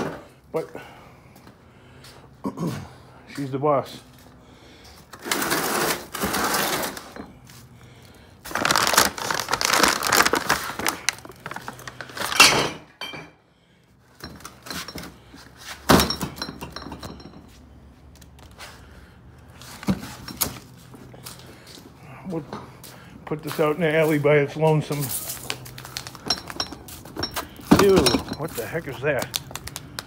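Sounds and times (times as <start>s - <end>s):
trash bags rustling: 8.4s - 12.8s, 24.9s - 29.8s.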